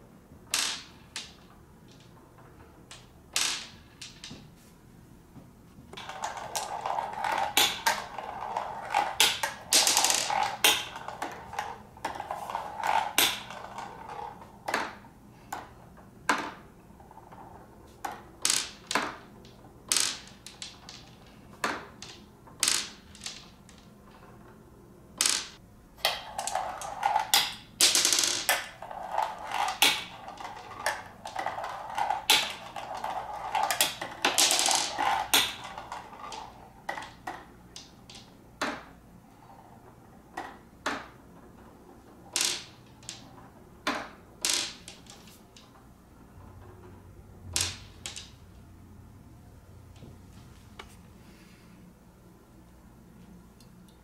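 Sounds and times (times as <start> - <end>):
marbles rolling down plastic chutes: 0.4 - 4.4, 6.0 - 15.7, 16.3 - 24.4, 25.2 - 48.6
marbles clicking and clacking: 6.0 - 15.7, 16.3 - 24.3, 25.2 - 38.9, 39.8 - 45.8, 47.4 - 48.6.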